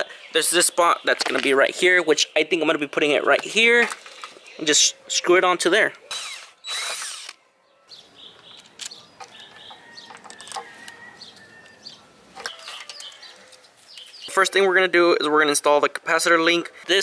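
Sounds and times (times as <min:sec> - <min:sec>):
plastic connectors clicking and rustling: 0:03.3 - 0:04.4, 0:08.4 - 0:11.0, 0:12.4 - 0:13.6
cordless drill driving screw: 0:06.1 - 0:07.4.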